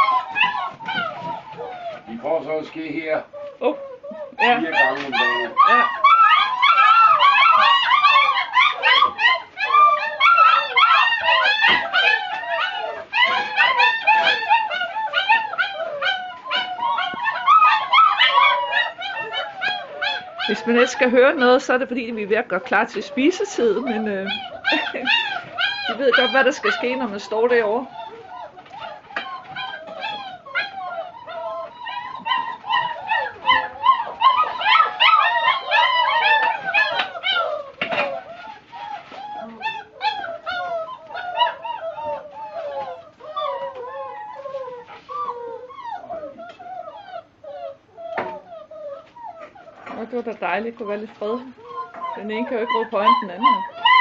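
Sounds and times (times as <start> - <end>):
puppies whining and yelping: 0.0 - 54.0.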